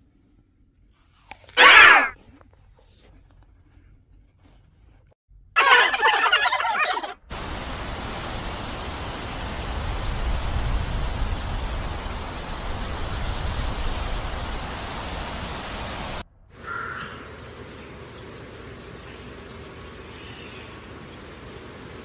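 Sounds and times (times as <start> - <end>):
steady rushing noise: 7.3 - 16.3.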